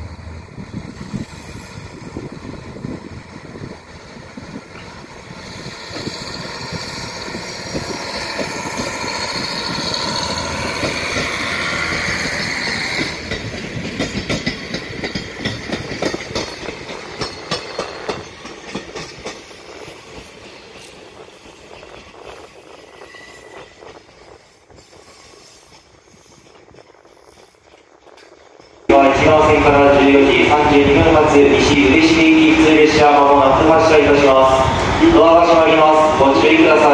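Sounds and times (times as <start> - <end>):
diesel railcar engine: 0.0 - 36.9
wheels clacking over rail joints: 3.8 - 22.4.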